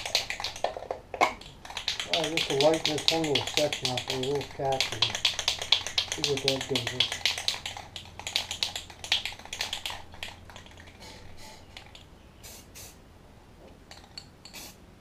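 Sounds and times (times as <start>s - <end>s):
spray can ball rattling: 0.0s - 12.1s, 13.9s - 14.8s
short spray hisses: 12.4s - 13.0s, 14.5s - 14.8s.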